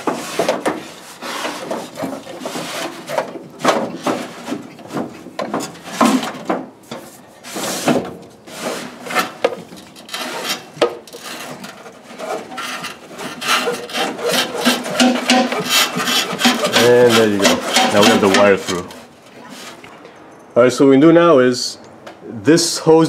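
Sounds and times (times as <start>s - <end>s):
rubber hose scraping car body: 0.0s - 20.0s.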